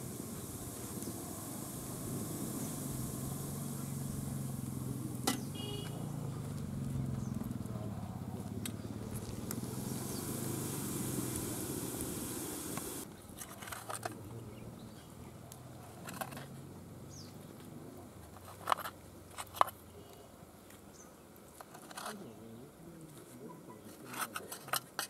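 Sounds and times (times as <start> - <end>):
pot steaming hiss: 0.0 - 6.8, 8.9 - 13.1.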